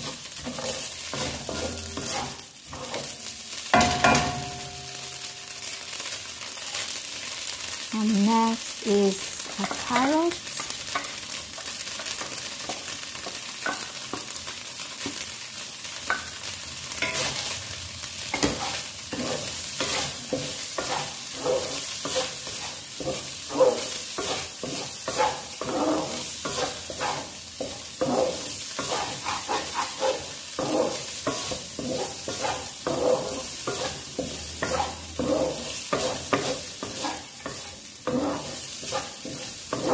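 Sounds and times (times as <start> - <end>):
spatula scraping a pan: 0.0 - 4.7, 9.4 - 14.4, 16.9 - 17.6, 18.3 - 39.9
food sizzling in a frying pan: 0.0 - 39.9.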